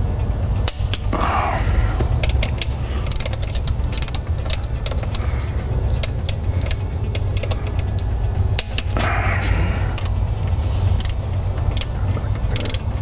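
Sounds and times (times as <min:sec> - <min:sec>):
steady low hum: 0:00.0 - 0:13.0
ratcheting torque wrench clicking: 0:00.5 - 0:13.0.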